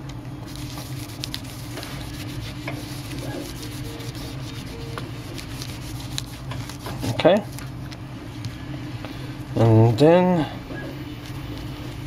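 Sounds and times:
steady low hum: 0:00.0 - 0:12.0
cloth rubbing plastic phone cover: 0:00.5 - 0:07.7.

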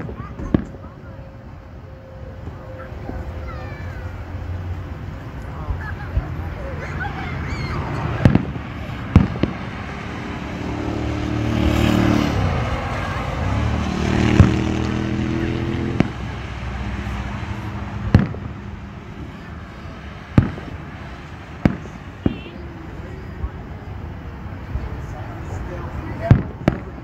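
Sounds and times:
firework shells bursting: 0:08.2 - 0:09.7, 0:18.0 - 0:18.6, 0:20.3 - 0:22.5.

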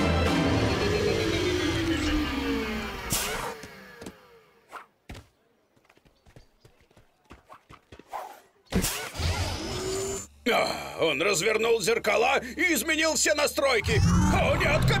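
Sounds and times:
descending cartoon music: 0:00.0 - 0:03.6.

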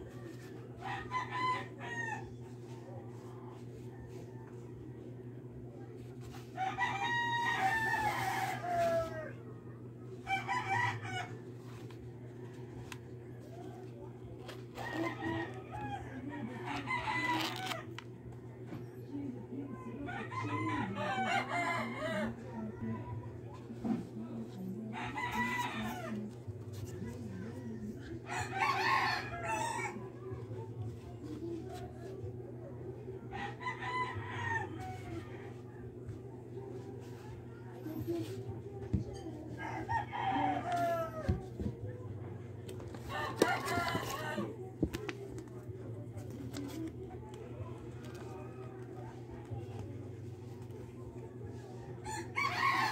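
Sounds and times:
rooster crowing: 0:00.8 - 0:02.3, 0:06.6 - 0:09.4, 0:10.2 - 0:11.4, 0:20.1 - 0:22.6, 0:24.9 - 0:26.3, 0:28.3 - 0:30.1, 0:39.6 - 0:41.3, 0:43.0 - 0:44.5, 0:52.0 - 0:52.9.

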